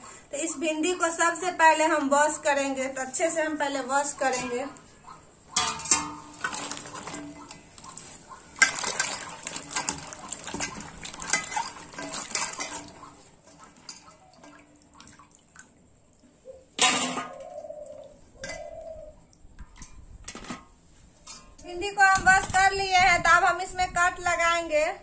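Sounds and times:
water splashing in a bowl: 3.9s - 20.1s.

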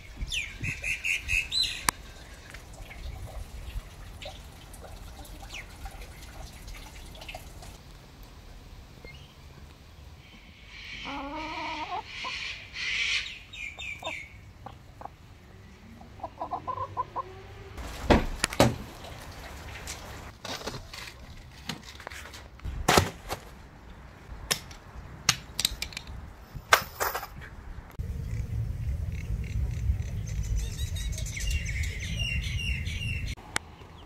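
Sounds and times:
hens clucking: 10.3s - 15.3s, 15.9s - 17.7s
low rumble: 27.6s - 33.4s.

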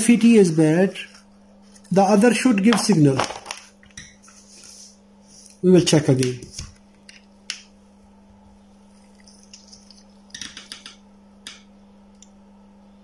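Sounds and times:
faint low hum: 0.0s - 13.0s
test probes clicking and tapping: 9.4s - 12.4s.

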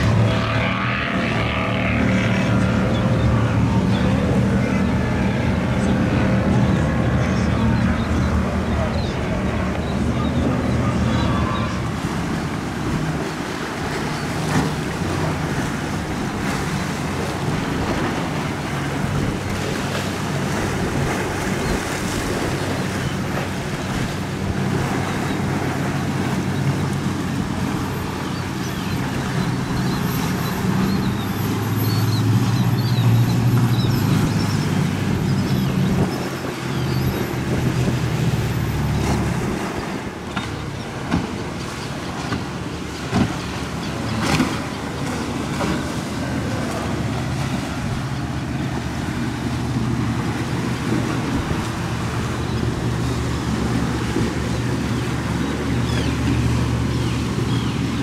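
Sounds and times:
boat engines running: 0.0s - 58.0s
surf: 0.0s - 58.0s
wind: 0.0s - 58.0s.

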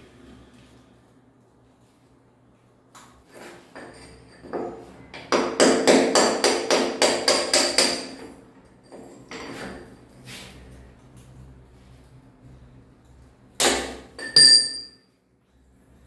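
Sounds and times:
hammer striking chisel on wall: 3.8s - 8.4s, 13.6s - 15.0s.

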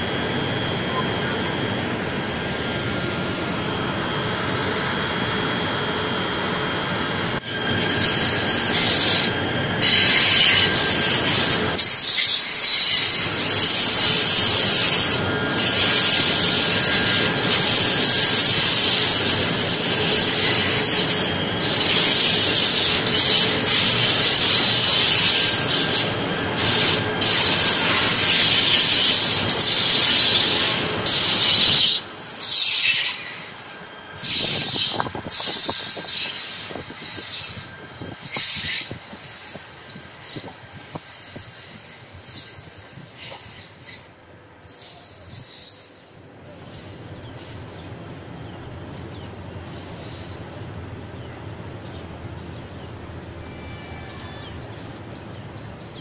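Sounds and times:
electric train running: 0.0s - 44.0s
wheels squealing on rails: 0.0s - 56.0s.

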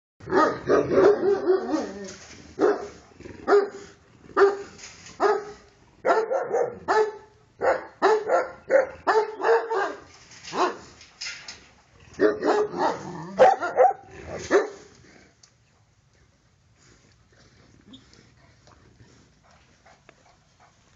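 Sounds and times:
dog barking: 0.3s - 1.9s, 2.6s - 10.8s, 12.2s - 14.8s.

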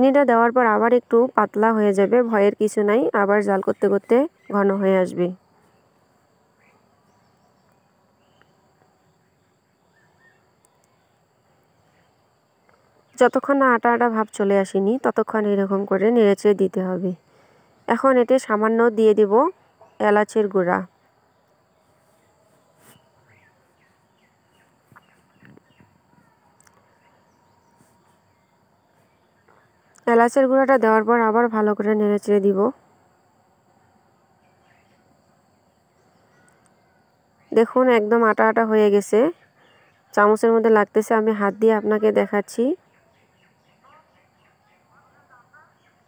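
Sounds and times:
bird chirping: 6.6s - 13.4s, 20.9s - 30.0s, 34.4s - 37.6s, 42.8s - 46.0s.

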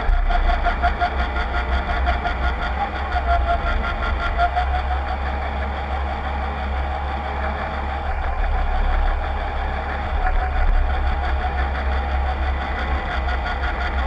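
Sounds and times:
constant drive whine: 0.0s - 14.0s
deep engine rumble: 0.0s - 14.0s.

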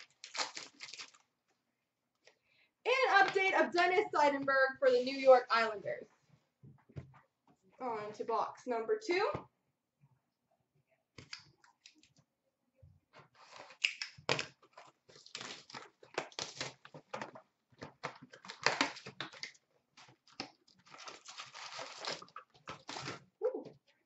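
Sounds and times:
card packs rustling: 0.0s - 1.3s, 14.4s - 23.2s
wrapper crinkling and tearing: 0.0s - 1.3s, 13.4s - 17.0s, 18.2s - 23.3s.

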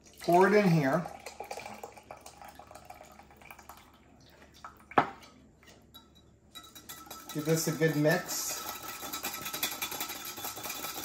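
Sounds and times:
liquid trickling into a glass: 0.0s - 7.4s
whisk scraping a metal pan: 6.6s - 11.0s.

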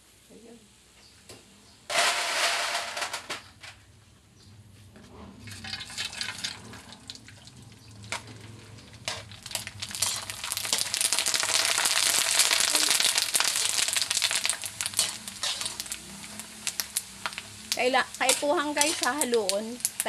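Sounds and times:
pasta sizzling in hot oil: 5.4s - 20.0s.

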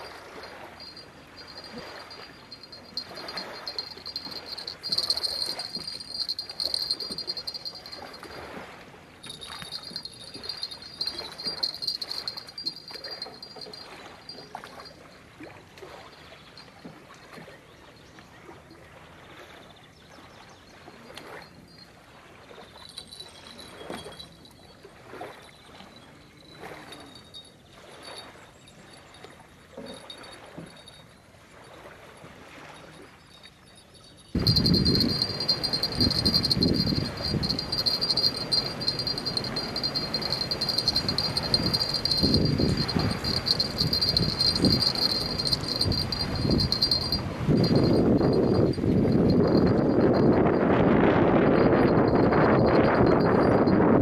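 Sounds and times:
insects chirring: 0.0s - 8.4s, 9.2s - 14.9s, 32.9s - 50.4s
water lapping: 0.0s - 53.6s.

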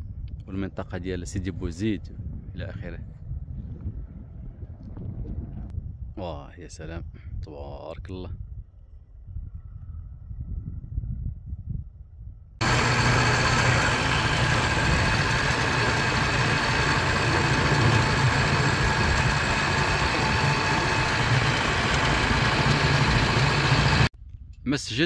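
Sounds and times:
vehicle engine hum: 12.6s - 24.1s.

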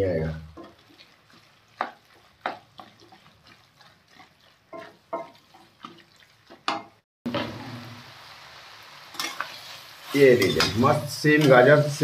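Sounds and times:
curry sizzling: 0.0s - 12.0s
wet squelch of thick curry: 0.5s - 6.7s
spatula scraping a pan: 0.6s - 7.8s.

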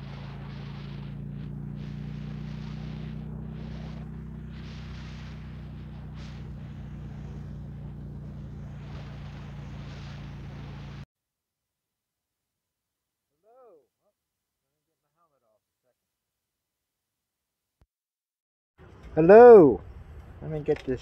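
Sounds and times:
motorcycle engine running: 0.0s - 11.0s
wind rushing over microphone: 0.0s - 11.0s.

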